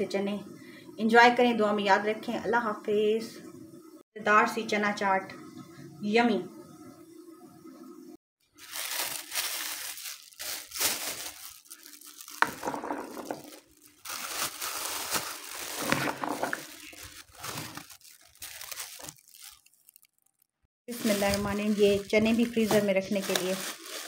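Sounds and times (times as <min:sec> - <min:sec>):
plastic bag crinkling: 0:08.6 - 0:24.0.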